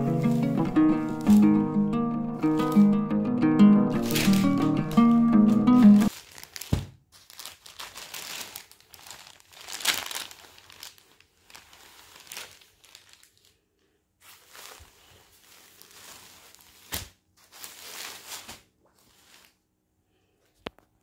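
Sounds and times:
fabric and wrapping rustling: 0:00.0 - 0:03.0, 0:03.9 - 0:13.6, 0:14.2 - 0:19.7
guitar background music: 0:00.0 - 0:06.1.

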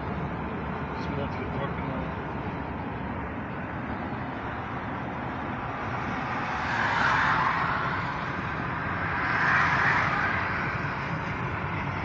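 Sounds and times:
road and wind noise in car: 0:00.0 - 0:12.0.

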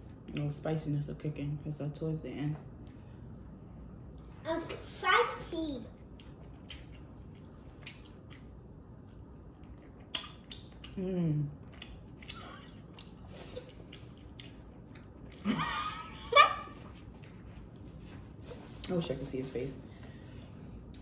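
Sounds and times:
wet chewing mouth clicks: 0:06.1 - 0:15.3.

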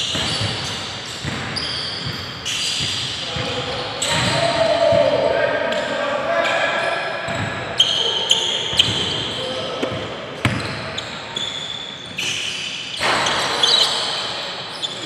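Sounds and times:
sneakers squeaking on court: 0:00.0 - 0:04.4, 0:07.3 - 0:15.0
basketball bouncing: 0:00.1 - 0:03.5, 0:07.3 - 0:07.6, 0:09.8 - 0:11.1.

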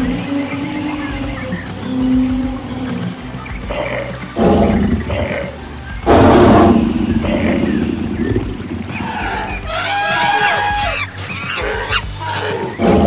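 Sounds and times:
animal calls: 0:00.0 - 0:13.0
rumble of running hooves: 0:00.0 - 0:13.0
trumpet-like animal call: 0:08.9 - 0:13.0.

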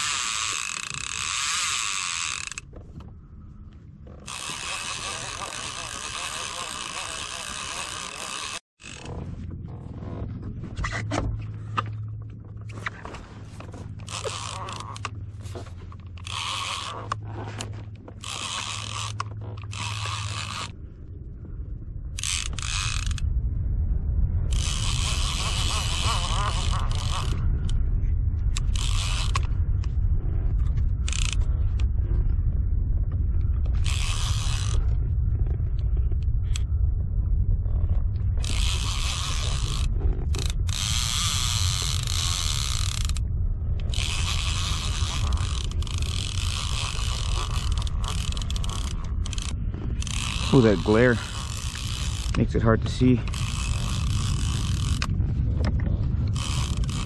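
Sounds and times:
mechanical ratcheting clicks: 0:00.0 - 0:02.7, 0:04.2 - 0:09.1, 0:14.0 - 0:15.1, 0:16.0 - 0:17.2, 0:18.2 - 0:20.8, 0:22.2 - 0:23.3, 0:24.5 - 0:27.8, 0:28.5 - 0:29.6, 0:31.0 - 0:31.5, 0:33.8 - 0:34.8, 0:38.4 - 0:43.2, 0:43.8 - 0:55.2, 0:56.3 - 0:57.0
low rumble: 0:00.0 - 0:06.2, 0:08.8 - 0:57.0.

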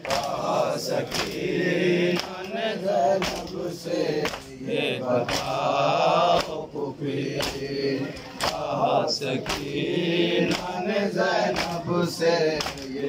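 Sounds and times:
hands slapping chests: 0:00.0 - 0:01.5, 0:02.1 - 0:03.6, 0:04.2 - 0:04.6, 0:05.2 - 0:05.7, 0:06.3 - 0:06.7, 0:07.3 - 0:10.8, 0:11.4 - 0:13.0
men chanting together: 0:00.0 - 0:13.0.

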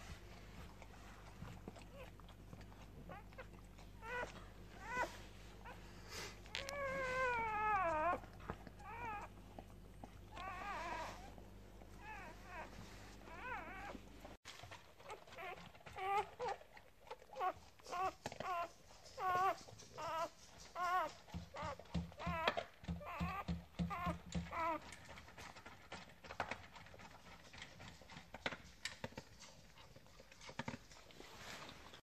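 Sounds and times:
puppies squeaking: 0:01.4 - 0:14.0, 0:15.0 - 0:25.0.

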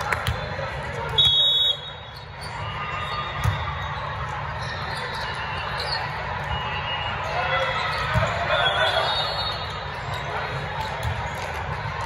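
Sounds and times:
hall full of voices: 0:00.0 - 0:12.0
referee's whistle blast: 0:01.2 - 0:02.1.

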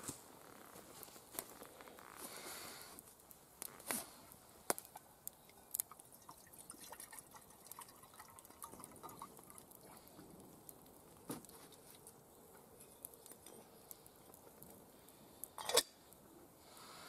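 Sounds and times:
water trickling into metal kettle: 0:05.5 - 0:09.8.

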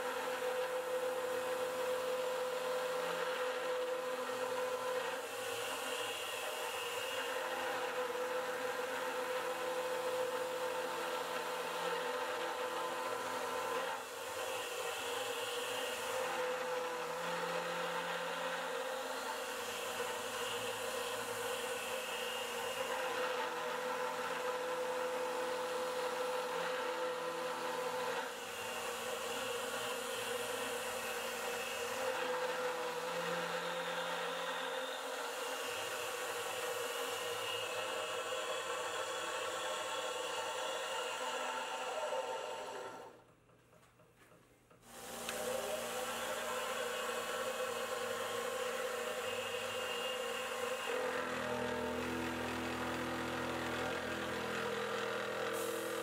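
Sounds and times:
mill spindle whir and cutting: 0:00.0 - 0:43.3, 0:44.7 - 0:56.0.

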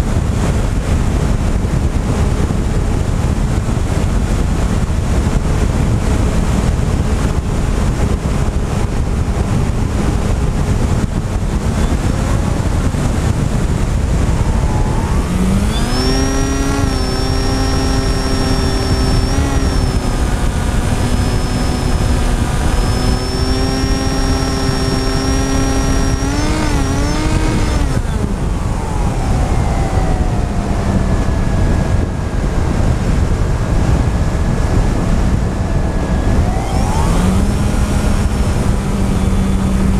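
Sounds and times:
motor and propeller humming: 0:00.0 - 0:39.9
wind rushing over camera: 0:00.0 - 0:39.9.

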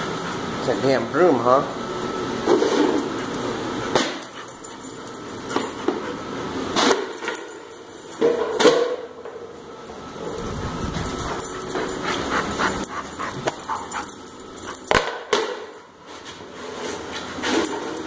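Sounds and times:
dog whining: 0:10.2 - 0:14.8.

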